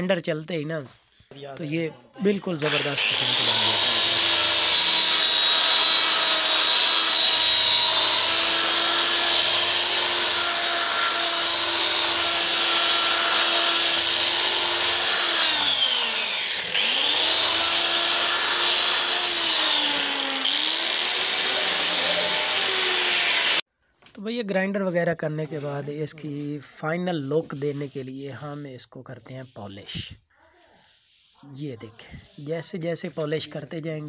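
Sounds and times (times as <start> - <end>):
electric sander whining: 2.6 - 23.6.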